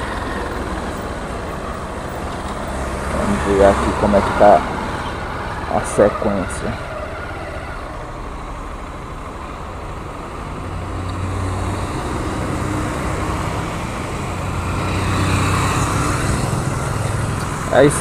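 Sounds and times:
small motorcycles riding past: 0:00.0 - 0:07.0, 0:10.8 - 0:18.0.

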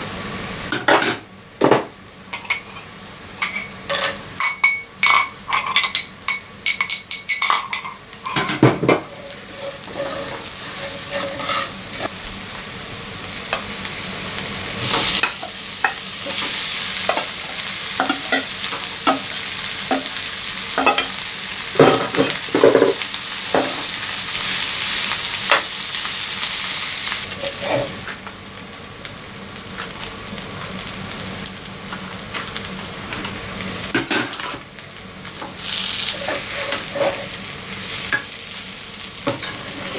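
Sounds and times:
food sizzling in oil: 0:00.0 - 0:39.9
metal spatula scraping pan: 0:09.0 - 0:12.1, 0:36.1 - 0:37.4.

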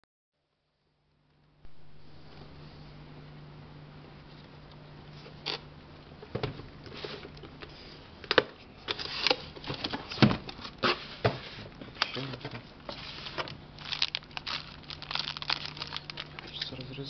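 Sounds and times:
low hum: 0:00.4 - 0:06.8.

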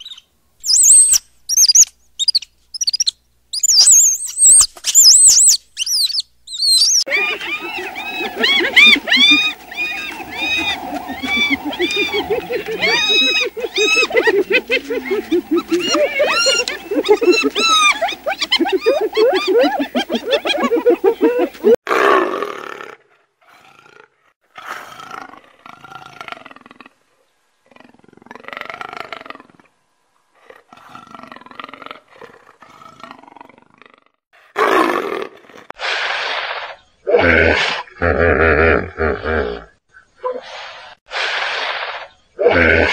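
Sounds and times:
hyena giggling: 0:07.1 - 0:21.8
leopard roaring and snarling: 0:07.1 - 0:26.9, 0:41.2 - 0:42.9.

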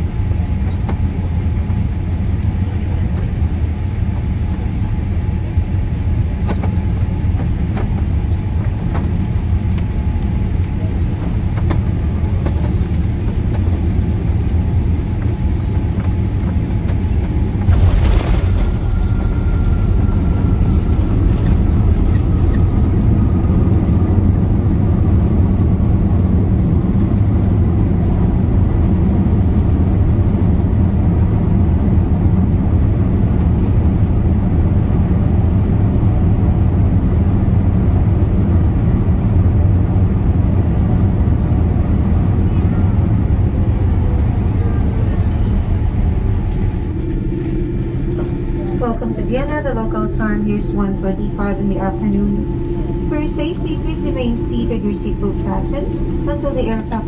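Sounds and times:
airliner cabin rumble: 0:00.0 - 0:57.0
airliner touching down: 0:00.1 - 0:57.0
faint falling whine: 0:17.4 - 0:25.7, 0:44.6 - 0:57.0.

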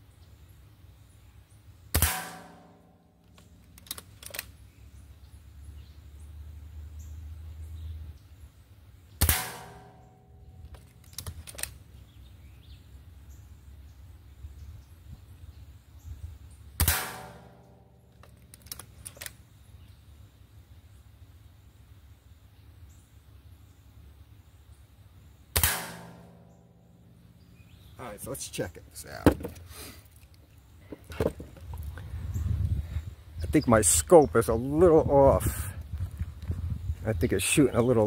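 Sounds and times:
air rifle shots: 0:01.9 - 0:02.9, 0:09.2 - 0:10.2, 0:16.8 - 0:17.8, 0:25.5 - 0:26.6
light mechanical clicks: 0:03.2 - 0:04.6, 0:10.6 - 0:11.8.

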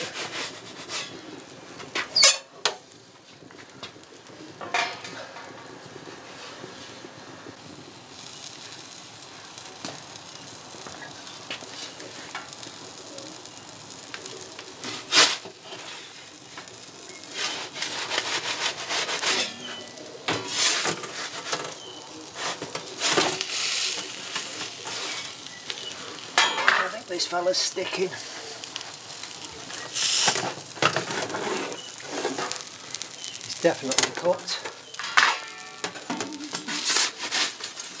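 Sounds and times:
wood fire hissing and crackling: 0:00.0 - 0:38.0
metal peel scraping on stone: 0:02.2 - 0:02.5, 0:17.4 - 0:21.6, 0:34.8 - 0:37.6.

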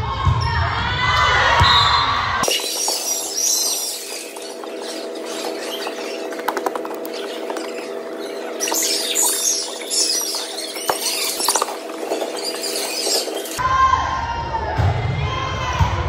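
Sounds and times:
sneakers squeaking on hardwood: 0:02.4 - 0:13.6.

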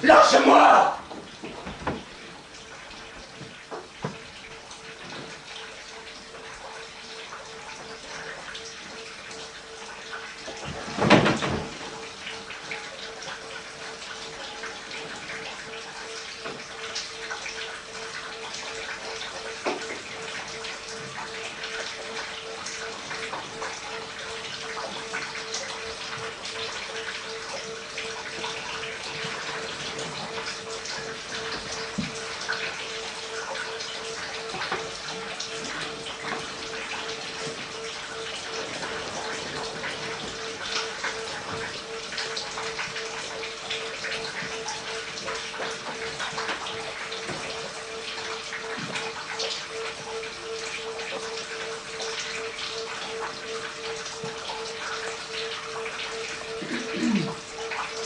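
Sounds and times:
water dripping into basin: 0:11.9 - 0:58.0.

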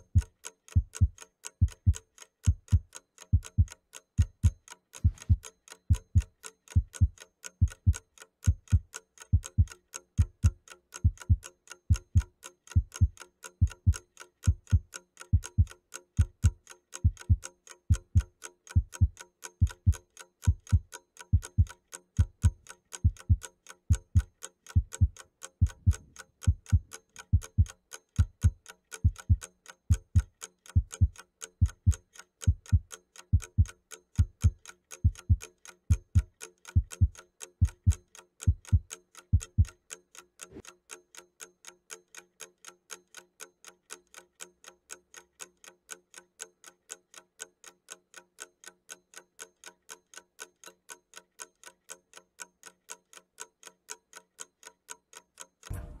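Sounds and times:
clock ticking: 0:00.0 - 0:56.0
deep thumps: 0:55.7 - 0:56.0.

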